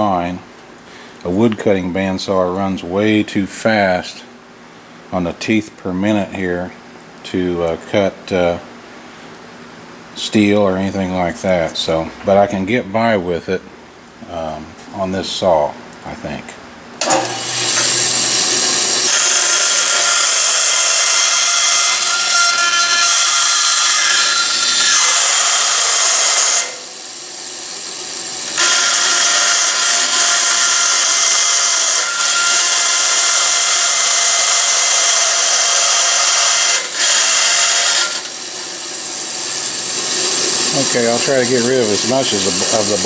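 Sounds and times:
bandsaw cutting metal sheet: 17.0s - 43.0s.

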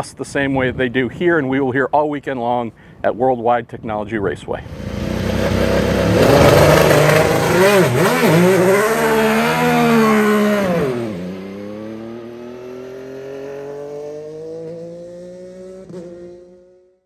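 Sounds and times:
race car engine revving: 4.6s - 16.5s.

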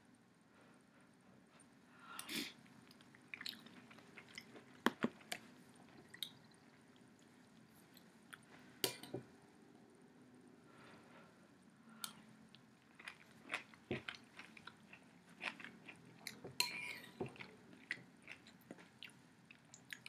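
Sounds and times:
person chewing and eating: 2.8s - 8.5s, 12.0s - 20.0s.

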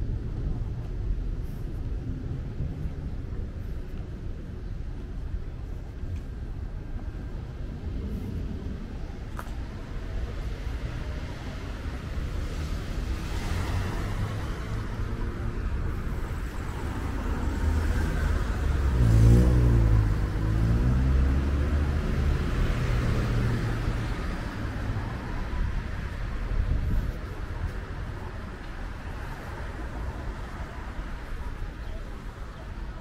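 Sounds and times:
cars driving past: 10.2s - 33.0s.

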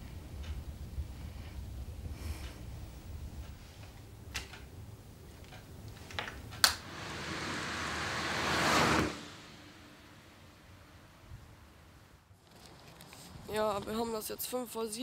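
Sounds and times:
rushing noise: 6.8s - 12.2s
low hum: 6.8s - 12.3s.

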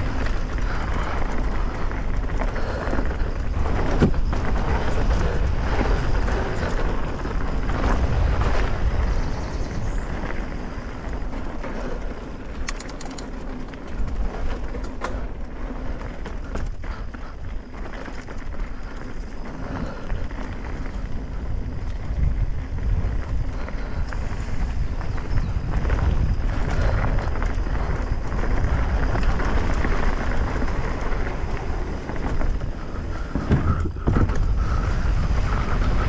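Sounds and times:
mountain bike tyre and frame noise: 0.0s - 36.0s
wind buffeting microphone: 0.0s - 36.0s
light clicks: 12.6s - 14.0s.

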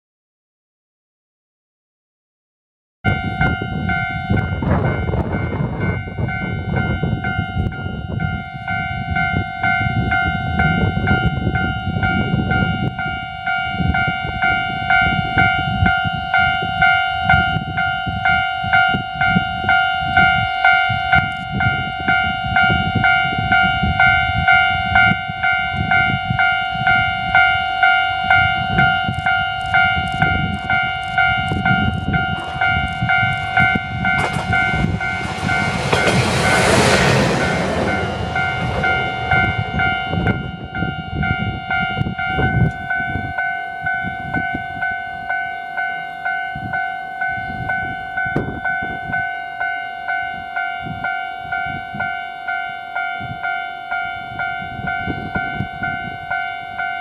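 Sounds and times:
level-crossing warning bell: 3.1s - 57.0s
railcar running noise: 3.1s - 57.0s
wheels clicking on rail joints: 29.0s - 39.4s.

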